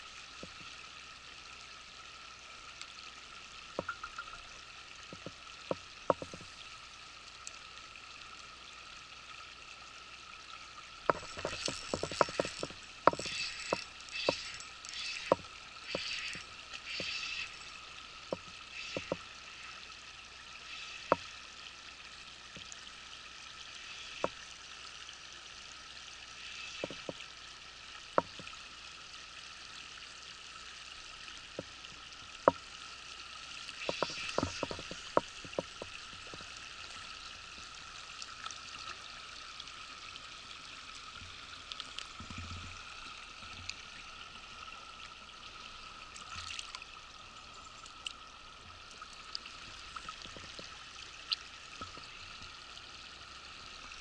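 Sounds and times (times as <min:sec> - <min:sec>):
river water running over rocks: 0:00.0 - 0:54.0
sharp clicks and ticks: 0:03.8 - 0:04.5, 0:11.1 - 0:19.2.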